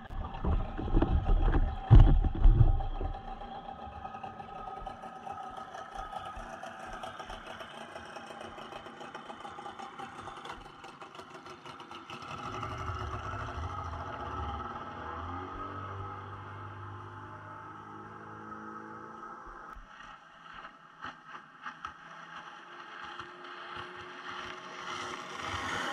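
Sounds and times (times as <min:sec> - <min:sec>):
outboard motor idling: 0:00.0 - 0:17.9
loud low thumps: 0:00.1 - 0:03.4.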